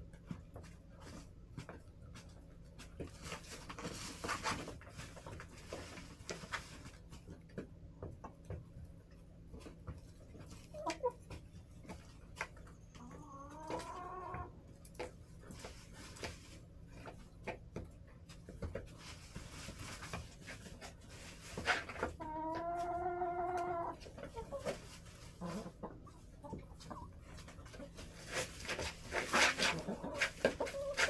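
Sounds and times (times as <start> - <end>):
chickens calling: 10.3 - 15.1, 20.7 - 31.0.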